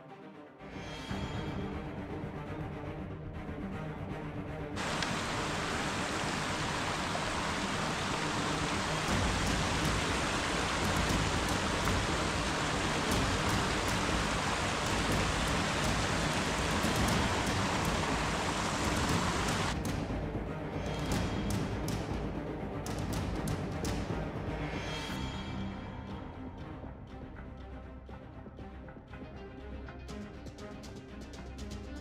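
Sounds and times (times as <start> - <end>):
creek splashing over stones: 4.8 - 19.8.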